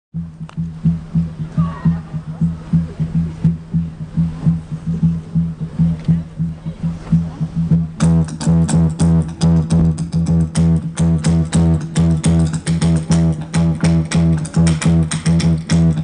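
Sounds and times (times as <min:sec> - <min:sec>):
low bass note: 0:00.2 - 0:16.0
electric guitar strumming: 0:07.9 - 0:16.0.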